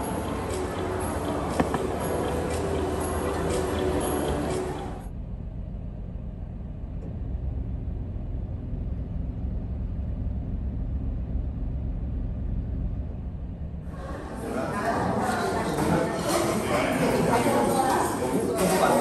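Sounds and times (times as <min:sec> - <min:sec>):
low rumble of moving vehicle: 0:00.0 - 0:15.0.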